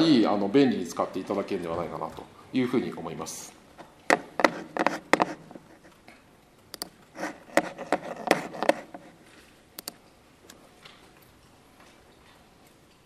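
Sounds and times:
laptop keys and trackpad clicking: 0:04.0 - 0:09.1, 0:09.8 - 0:10.6.

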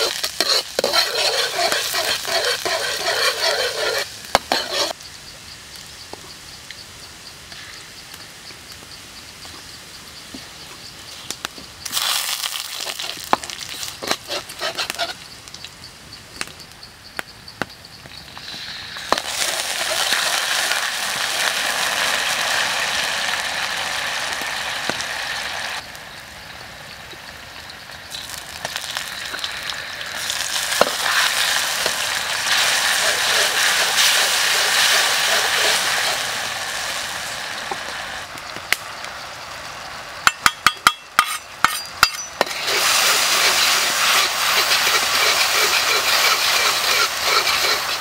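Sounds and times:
garlic sizzling in hot oil: 0:00.0 - 0:05.0, 0:11.8 - 0:15.6, 0:18.1 - 0:48.0
metal ladle scraping pan: 0:00.0 - 0:05.0, 0:14.0 - 0:15.2.

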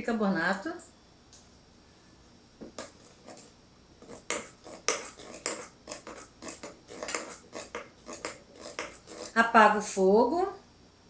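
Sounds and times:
metal spoon stirring in a pot: 0:02.8 - 0:09.4
spoon clinking and scraping pot: 0:02.8 - 0:09.4.

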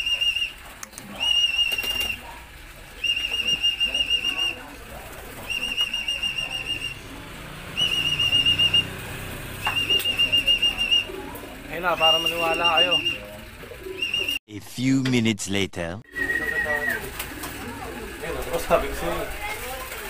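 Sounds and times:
trilling whistle blasts: 0:00.0 - 0:00.6, 0:05.5 - 0:07.1, 0:07.8 - 0:09.0, 0:09.7 - 0:11.2, 0:16.1 - 0:17.0.

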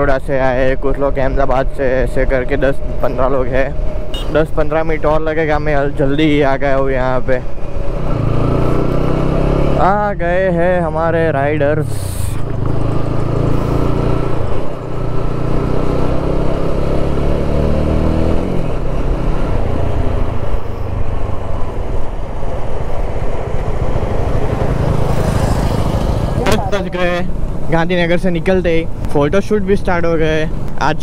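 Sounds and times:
motorcycle engine accelerating: 0:07.4 - 0:28.5.

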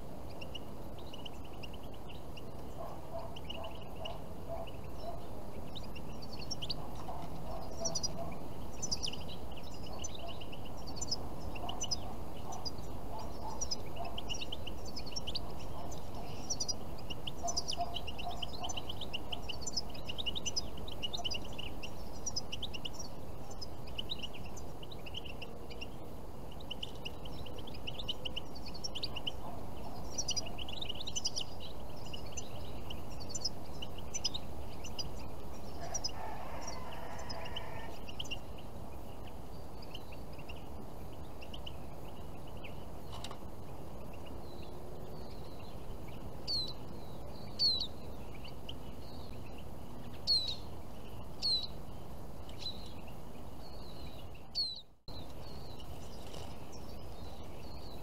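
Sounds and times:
finches twittering: 0:00.0 - 0:58.0
domestic fowl calls: 0:35.7 - 0:38.4.

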